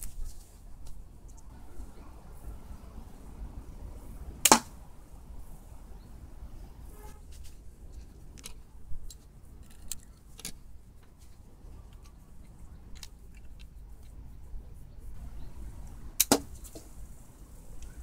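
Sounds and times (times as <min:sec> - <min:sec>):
crossbow metallic clicks and rattles: 0:07.4 - 0:14.4, 0:15.8 - 0:17.1.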